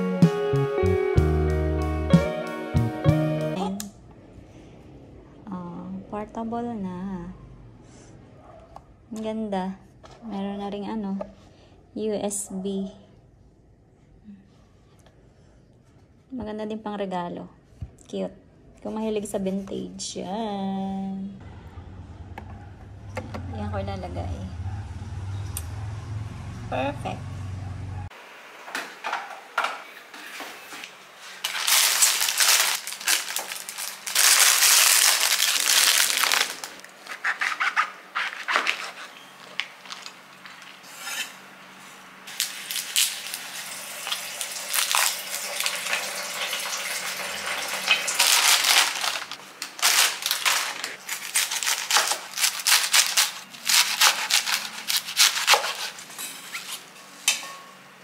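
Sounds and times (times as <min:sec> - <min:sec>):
plastic bags crinkling: 0:31.3 - 0:40.8, 0:42.3 - 0:56.8.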